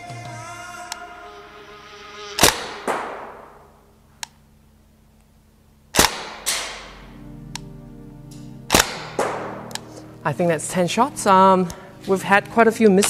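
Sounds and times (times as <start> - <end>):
airsoft gun shots: 2.4 - 3.6, 5.9 - 7.0, 8.7 - 9.6.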